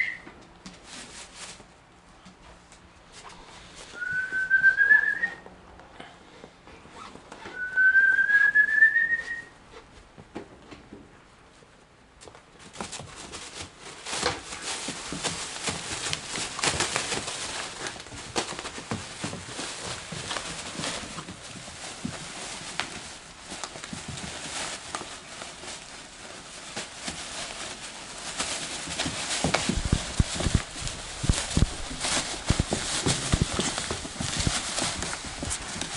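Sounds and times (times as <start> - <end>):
plastic trash bag crinkling: 0.0 - 1.8, 12.6 - 35.9.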